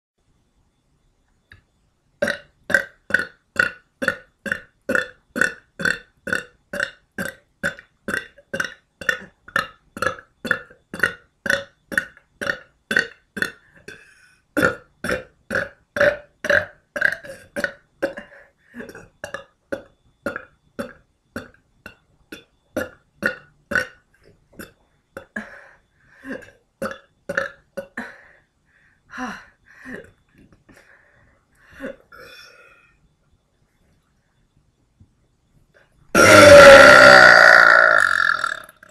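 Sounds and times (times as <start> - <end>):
woman burping: 2.2 - 28.4, 29.2 - 30.4, 31.7 - 32.7, 36.1 - 38.9.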